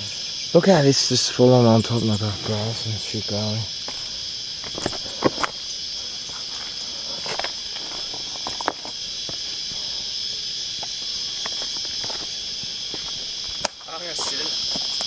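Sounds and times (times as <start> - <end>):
insects chorus: 0.0 - 15.0
twigs snapping: 13.0 - 13.9.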